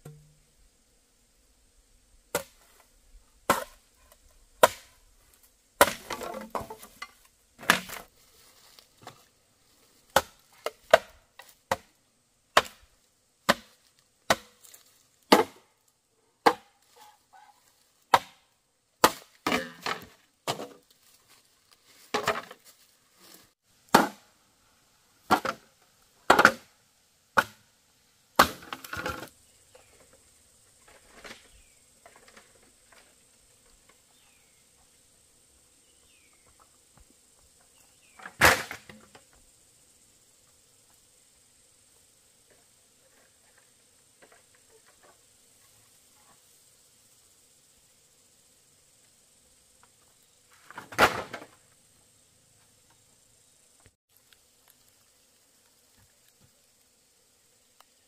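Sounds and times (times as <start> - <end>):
blade chopping wood: 2.3 - 2.6, 3.5 - 3.8, 4.6 - 4.9, 5.8 - 7.0, 10.1 - 11.9, 13.5 - 14.7, 15.3 - 15.6, 16.4 - 16.8, 18.1 - 18.4, 19.0 - 20.8, 23.9 - 24.3, 26.3 - 26.7, 27.4 - 27.6, 28.4 - 29.3
wood splintering crackle: 54.1 - 56.4.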